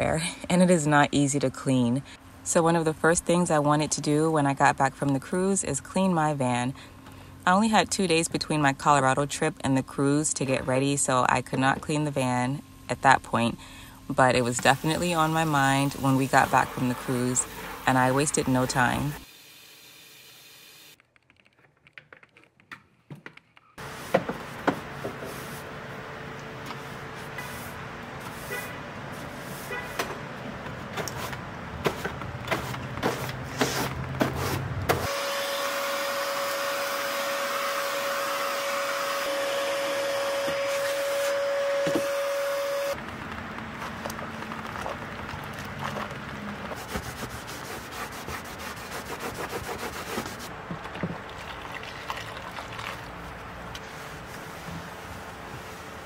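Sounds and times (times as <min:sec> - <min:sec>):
broom sweeping wood floor: 0:23.8 - 0:25.8, 0:26.8 - 0:30.0, 0:31.2 - 0:34.7
vacuum cleaner whining: 0:34.9 - 0:43.0.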